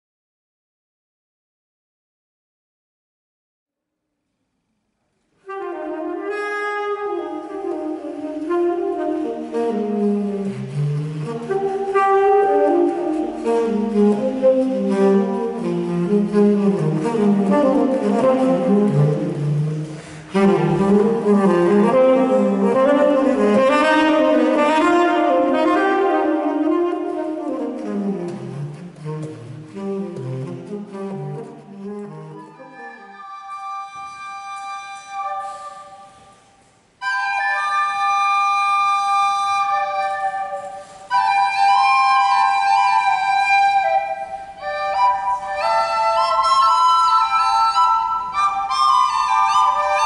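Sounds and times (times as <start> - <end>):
tenor saxophone improvising jazz: 5.4 - 50.0.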